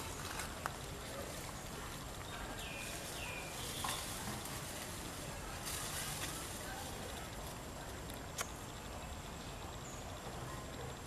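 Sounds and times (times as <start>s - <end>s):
steady outdoor hiss: 0.0s - 11.0s
sharp click: 8.1s - 8.6s.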